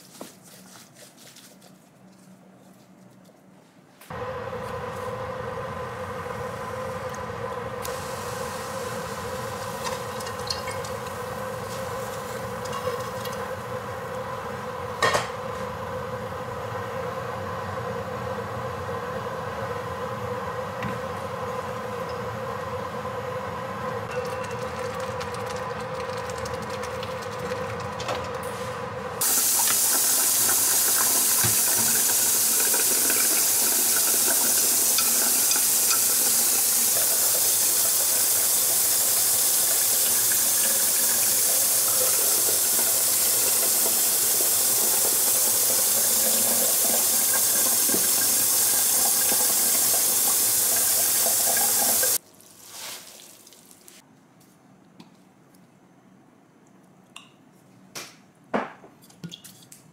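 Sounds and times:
pot boiling: 4.1 - 54.0
tap running into steel bowl: 9.6 - 11.2, 29.6 - 36.4, 46.8 - 48.4.

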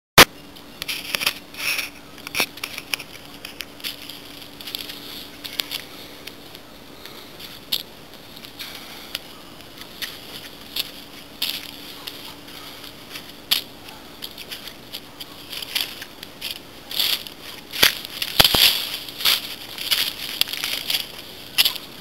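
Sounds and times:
footsteps crunching on dry leaves: 0.9 - 22.0.

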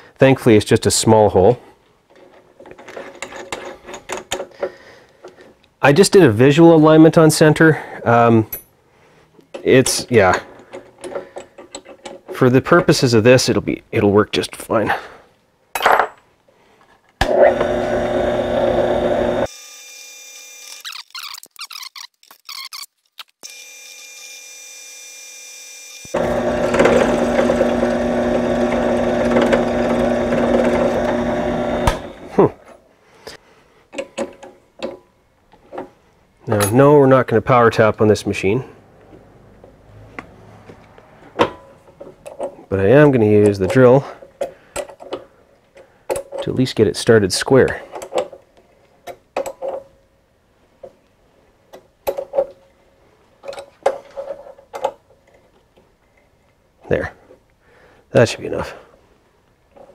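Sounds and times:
drill press drilling into steel: 17.2 - 19.6, 26.0 - 32.3
motor winding down: 17.2 - 21.2, 23.4 - 32.3.

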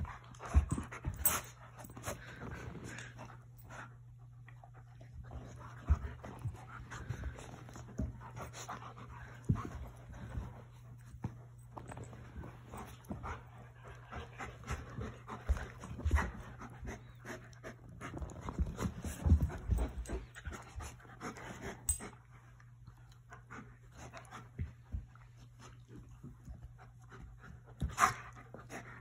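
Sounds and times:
dogs scuffling and thumping: 0.0 - 3.7, 5.0 - 22.2
dog panting: 0.0 - 22.7.

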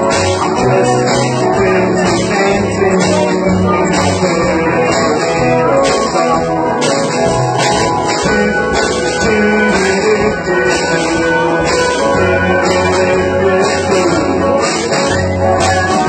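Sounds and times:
drums: 0.0 - 16.0
guitar: 0.0 - 16.0.

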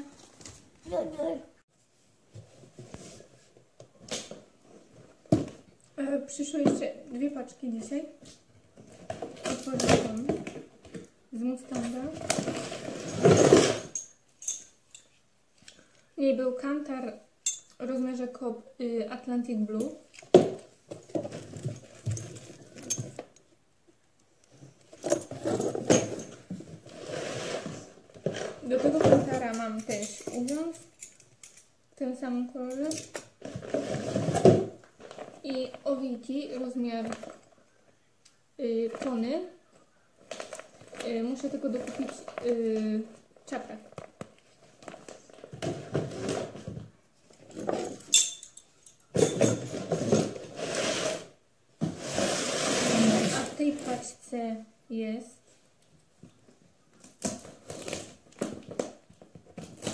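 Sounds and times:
cardboard rustling and scraping: 11.7 - 13.9, 24.6 - 29.4, 33.4 - 37.6, 40.2 - 48.0, 49.6 - 54.2
metal buckles clinking: 13.1 - 15.2, 17.4 - 17.8, 21.0 - 23.4, 29.2 - 31.8, 32.7 - 33.4, 47.7 - 49.8.

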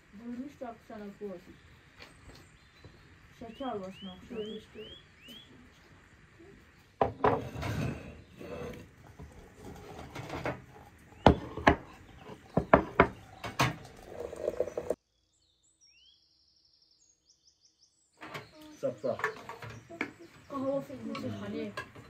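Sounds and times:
tableware clinking and knocking: 7.0 - 15.0.

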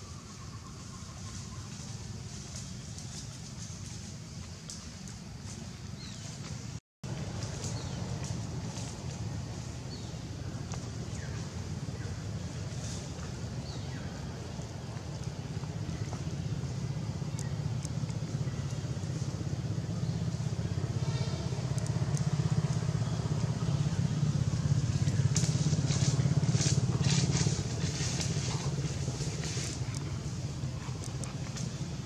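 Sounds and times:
motor engine running: 0.7 - 32.0
sharp crackles: 14.5 - 32.0.

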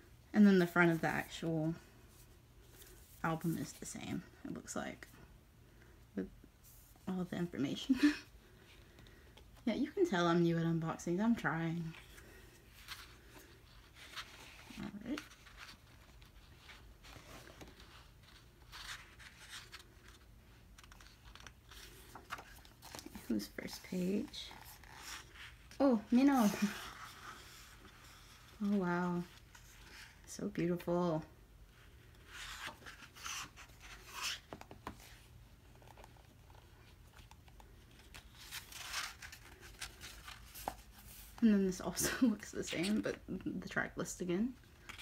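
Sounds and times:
low room hum: 0.0 - 45.0
pages rustling: 11.8 - 28.6, 31.9 - 41.4.

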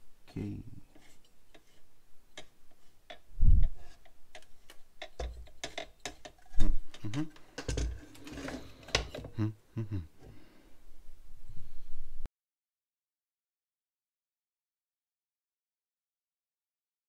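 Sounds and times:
plastic parts clicking and rattling: 0.9 - 9.4.

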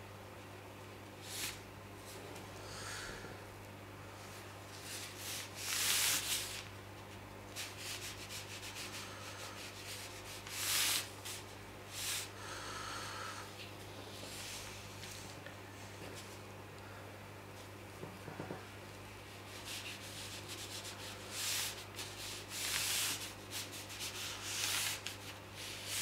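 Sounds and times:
steady low hum: 0.0 - 26.0
brush rubbing on paper: 4.7 - 6.7, 7.5 - 12.3, 19.3 - 26.0.

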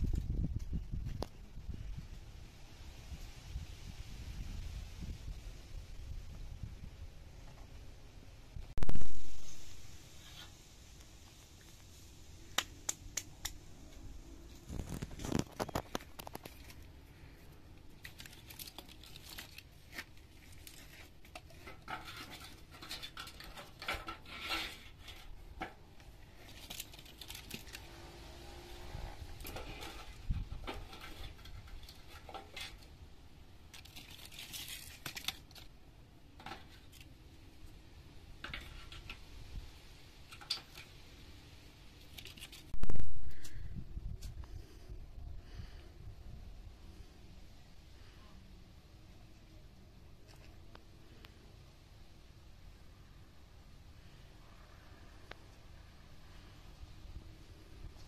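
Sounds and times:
dry tinder crinkling: 12.5 - 28.0, 33.6 - 37.2, 41.9 - 43.6
wood sticks clicking and knocking: 17.8 - 27.9, 40.2 - 41.0.

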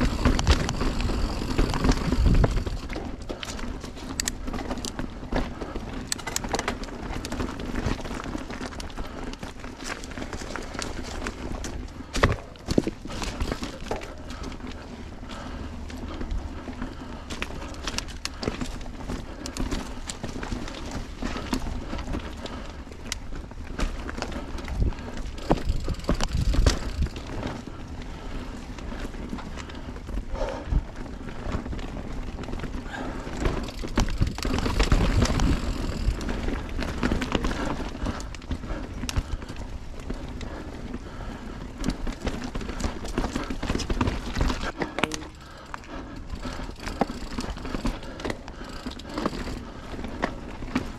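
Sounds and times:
wind on microphone: 0.0 - 2.9
bike frame and chain rattling: 0.0 - 50.9
bike tyres crunching on dirt: 0.0 - 50.9.

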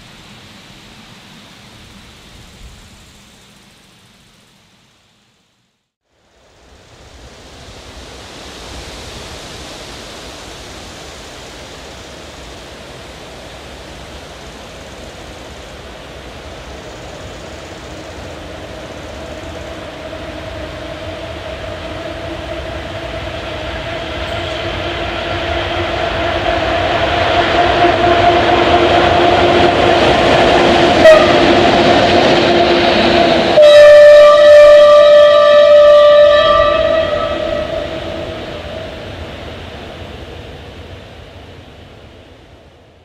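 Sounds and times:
rushing rail noise: 0.0 - 43.0
locomotive droning tone: 10.1 - 43.0.

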